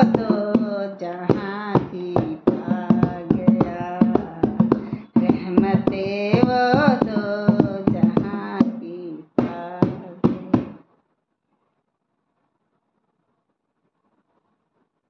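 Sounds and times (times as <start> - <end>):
hand drum strokes: 0.0 - 10.8
woman singing: 0.0 - 10.8.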